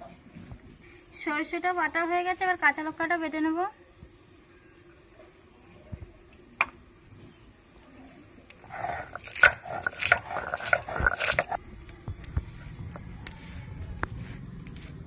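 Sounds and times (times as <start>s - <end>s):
stone roller grinding: 8.6s - 11.6s.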